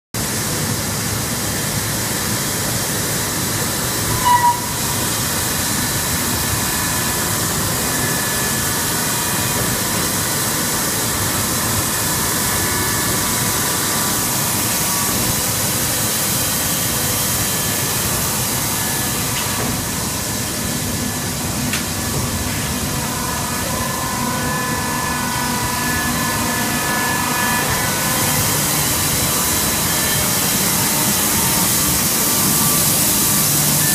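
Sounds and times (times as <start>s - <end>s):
shredder line running: 0.3s - 33.9s
machine squeal: 4.0s - 5.2s.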